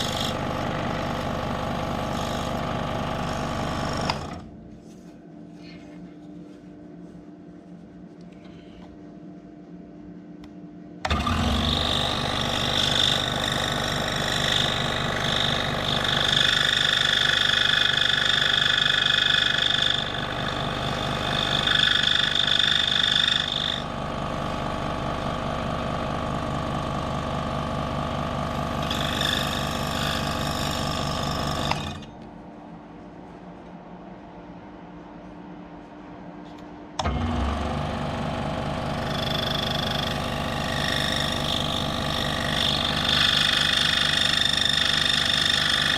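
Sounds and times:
scroll saw buzzing: 0.0 - 4.4, 11.0 - 32.2, 37.0 - 45.9
saw blade cutting wood: 11.1 - 23.9, 28.8 - 32.1, 39.0 - 45.9.

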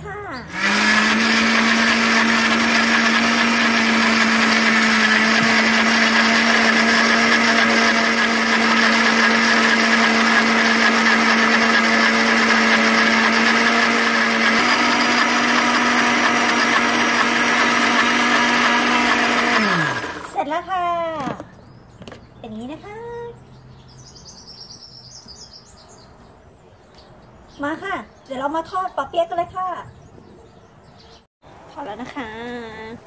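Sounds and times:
blender motor winding down: 0.5 - 20.4
blender running: 0.5 - 20.4.

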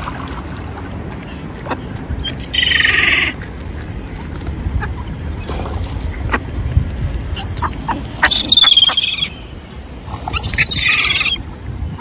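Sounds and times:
gull calling: 7.4 - 9.4.

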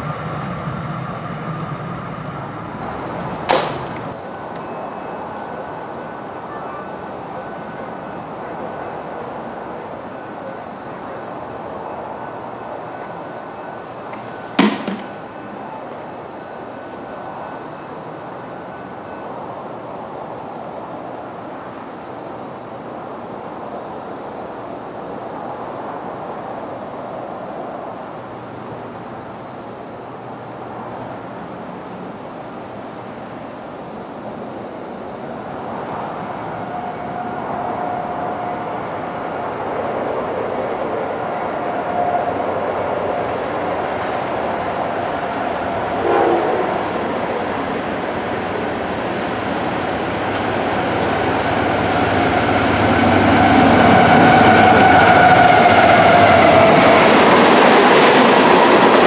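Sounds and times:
high-pitched whine: 0.0 - 6.1
steady background hiss: 0.0 - 55.7
sharp knock: 2.8 - 4.2, 14.6 - 15.2.

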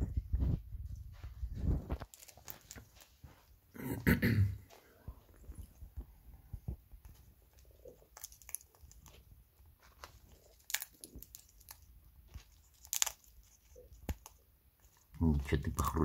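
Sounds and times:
plastic bag crinkling: 1.8 - 3.4, 7.2 - 16.0
parrot cracking seeds: 2.0 - 3.2, 7.0 - 16.0.

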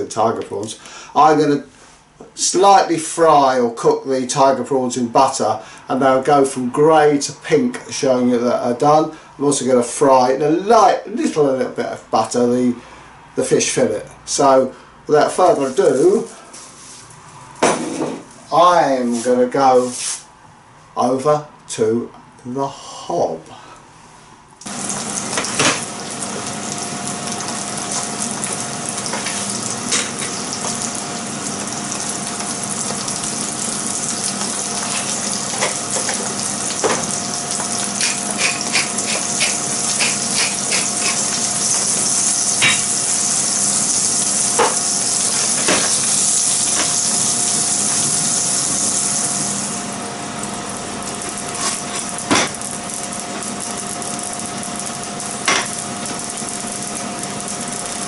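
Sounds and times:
fish sizzling in a frying pan: 24.6 - 58.0.

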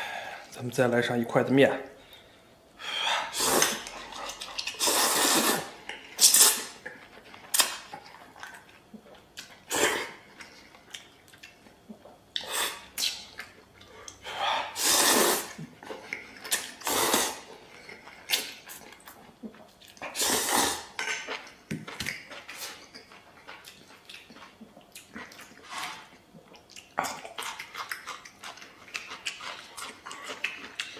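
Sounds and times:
man slurping noodles: 3.2 - 3.9, 4.7 - 6.8, 14.3 - 15.6, 16.8 - 17.5, 20.0 - 21.0
chewing: 3.6 - 5.0, 6.8 - 14.8, 17.5 - 20.2, 21.0 - 30.9.

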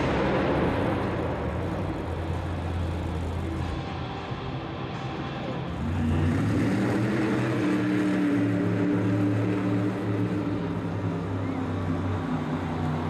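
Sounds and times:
monster truck engine running hard: 0.0 - 13.0.

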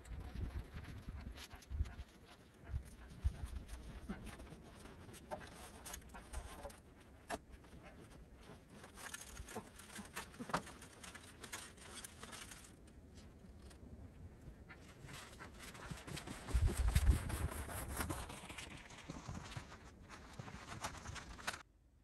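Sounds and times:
footsteps crunching on snow: 16.5 - 21.6.

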